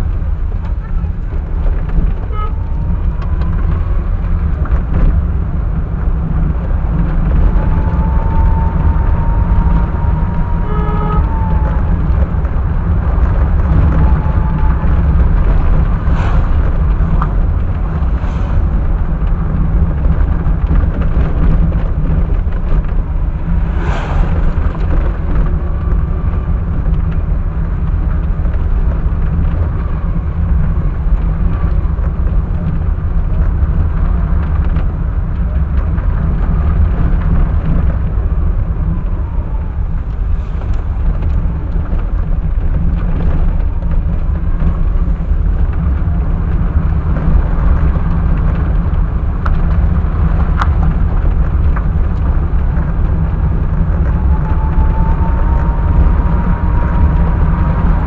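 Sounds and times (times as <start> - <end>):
car engine and road noise: 0.0 - 58.0
brief sharp noise: 23.6 - 25.1.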